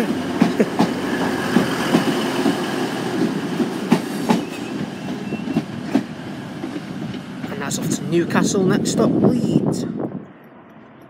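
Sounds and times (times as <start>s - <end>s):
train passing: 0.0s - 11.0s
brief wheel squeaks: 4.4s - 5.7s.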